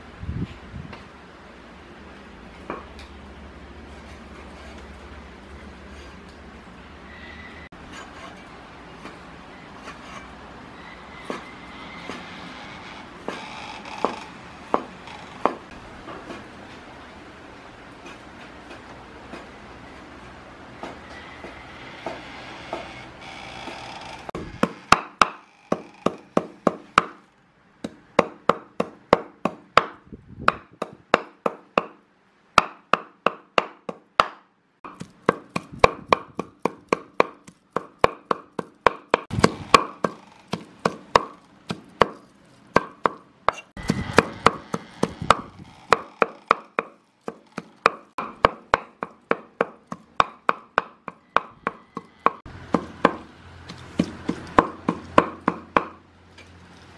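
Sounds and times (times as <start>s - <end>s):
cleaver chopping meat on wood: 24.4s - 27.2s, 27.8s - 32.0s, 32.6s - 56.0s.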